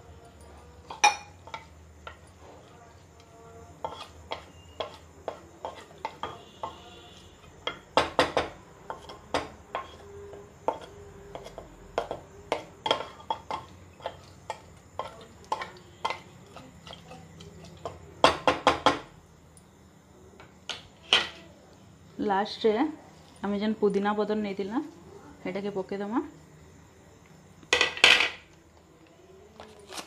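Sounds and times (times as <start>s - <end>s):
wooden spatula scraping metal pot: 3.8s - 6.8s.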